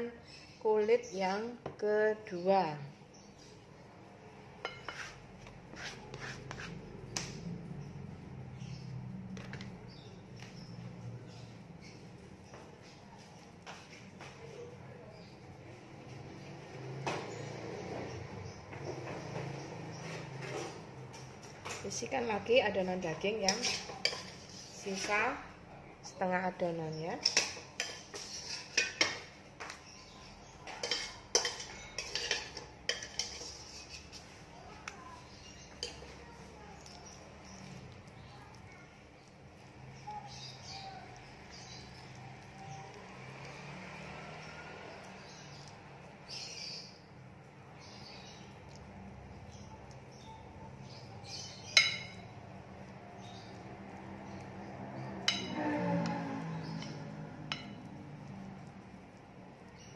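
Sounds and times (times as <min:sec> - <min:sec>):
soft rustling of dough: 0:00.1 - 0:59.9
metal spoon scraping a dish: 0:04.6 - 0:07.0, 0:23.3 - 0:25.3, 0:27.2 - 0:29.4, 0:30.4 - 0:42.6, 0:43.2 - 0:46.9, 0:49.5 - 0:53.6, 0:55.0 - 0:58.8.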